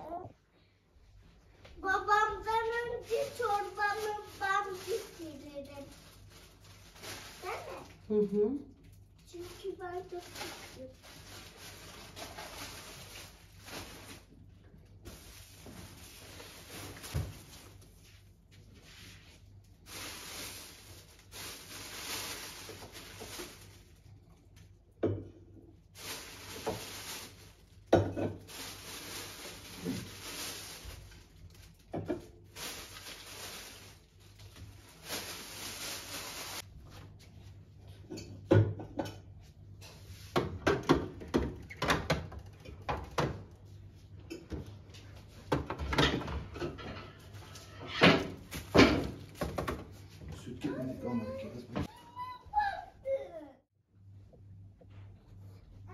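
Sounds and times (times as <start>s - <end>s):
rustling: 9.2s - 24.2s, 26.0s - 37.6s.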